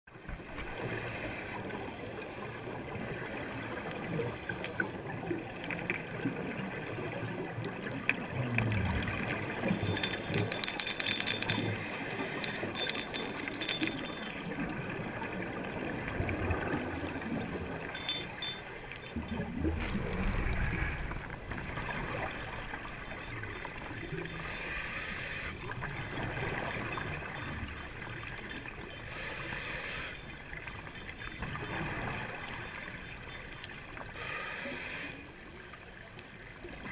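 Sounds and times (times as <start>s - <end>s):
sharp clicks and rattles: 9.7s - 14.4s, 17.9s - 20.0s, 30.1s - 34.1s.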